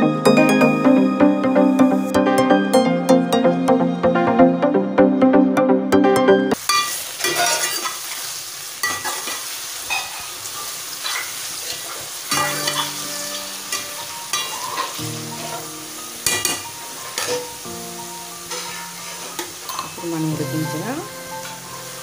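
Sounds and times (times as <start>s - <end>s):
vegetables sizzling in a pot: 6.6s - 22.0s
metal spatula scraping a pot: 7.2s - 8.0s, 12.3s - 15.7s, 16.3s - 17.5s, 18.5s - 20.0s.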